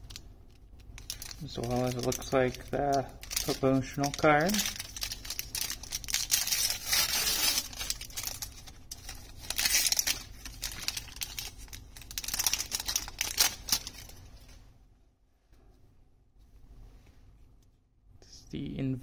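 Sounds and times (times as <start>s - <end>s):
foil wrapper tearing and crinkling: 0.9s - 14.2s.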